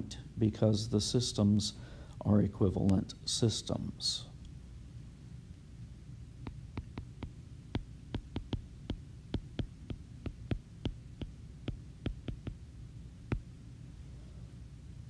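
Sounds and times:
low hum: 3.2 - 15.0
stylus tapping on glass screen: 6.4 - 12.6.

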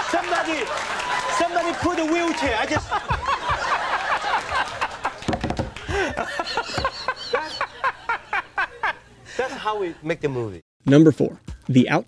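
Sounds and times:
man laughing: 1.4 - 5.2, 5.8 - 9.8.

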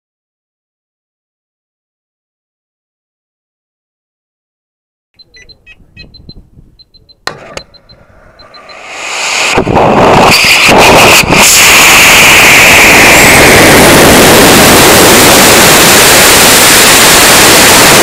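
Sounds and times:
faint electronic beeping: 5.2 - 8.9
sharp click: 6.1 - 8.8
rocket motor roar: 7.2 - 18.0.

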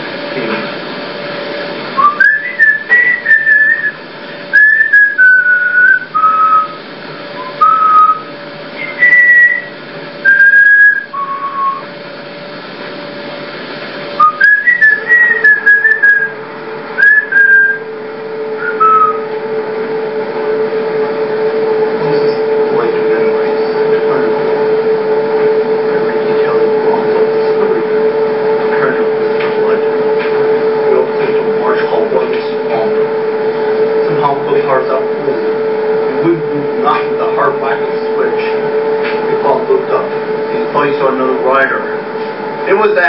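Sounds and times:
steady low hum: 0.0 - 43.0
person whistling a slow tune: 2.0 - 6.8, 7.4 - 8.2, 8.8 - 11.8, 14.2 - 16.3, 17.0 - 17.8, 18.6 - 19.2.

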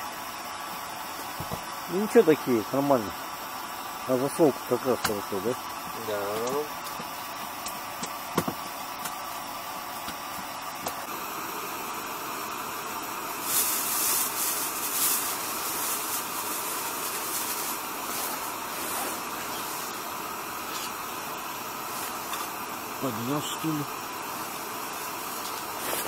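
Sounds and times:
gas burner hissing: 0.0 - 26.0
rustling rush: 13.4 - 20.1.

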